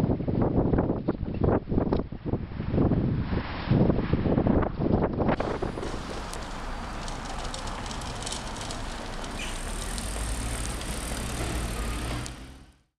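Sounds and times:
bicycles riding on brick street: 5.4s - 13.0s
low traffic rumble: 5.4s - 13.0s.

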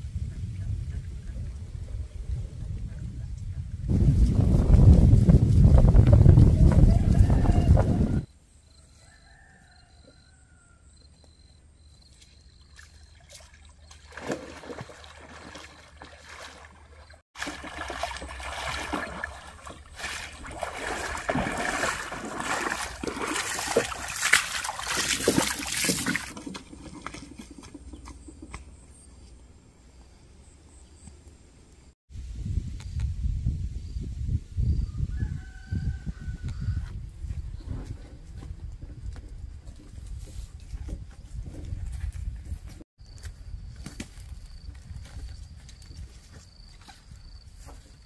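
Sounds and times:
muddy water splashing: 12.1s - 28.7s.

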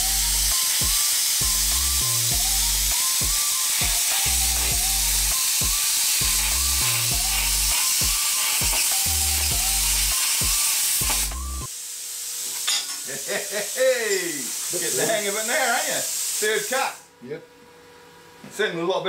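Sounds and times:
background music with a beat: 0.0s - 11.7s
plasma cutter hissing: 0.0s - 17.1s.

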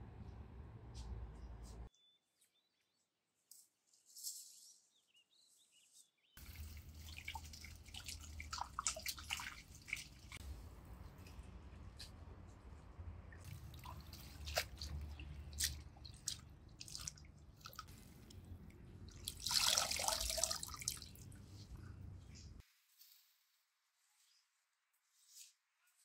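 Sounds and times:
water dripping and splashing: 6.4s - 10.4s, 13.2s - 21.9s.

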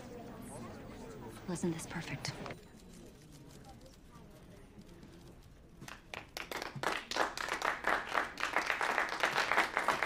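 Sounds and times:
group applauding: 5.9s - 10.0s.

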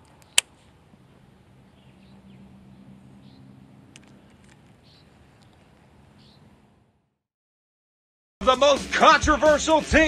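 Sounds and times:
bird chirping: 0.0s - 6.6s
tiny clicks: 3.9s - 4.8s.

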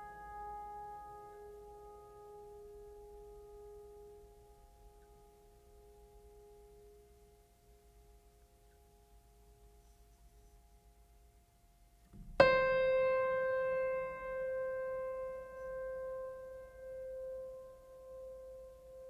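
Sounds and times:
soft tones: 0.0s - 19.0s
piano note ringing: 12.2s - 19.0s.

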